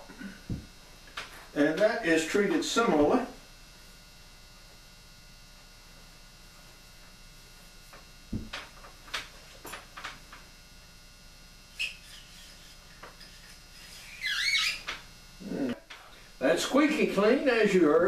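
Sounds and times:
faint steady hum: 0.0s - 18.0s
soft knock: 8.3s - 8.6s.

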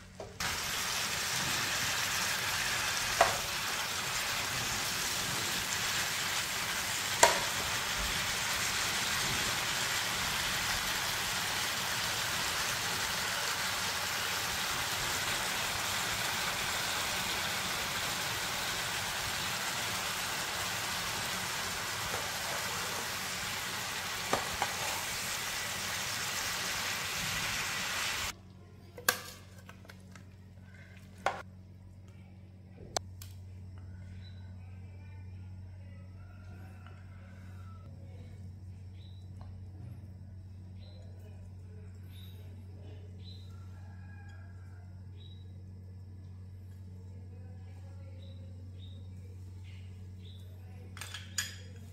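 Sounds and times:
food sizzling in a frying pan: 0.4s - 28.3s.

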